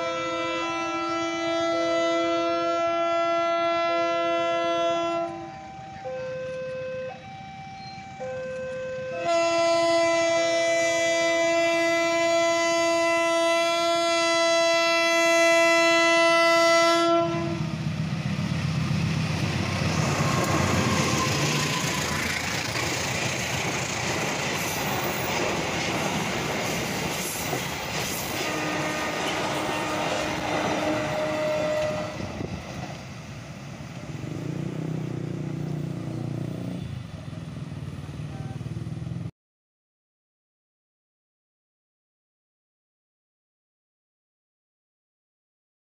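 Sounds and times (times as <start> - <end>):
train horn blast: 0.0 - 17.8, 28.2 - 32.5
train wheels over rail joints: 17.6 - 38.3
motorcycle engines rumbling: 34.0 - 39.3.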